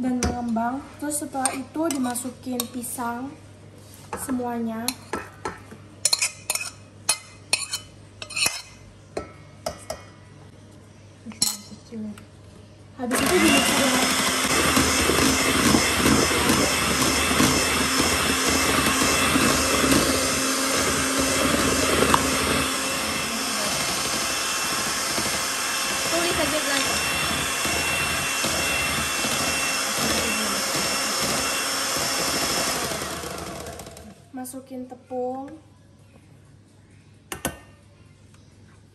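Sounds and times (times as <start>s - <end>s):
metal spoon clinking on a plate: 6.0s - 10.0s
electric hand mixer whining: 13.1s - 34.2s.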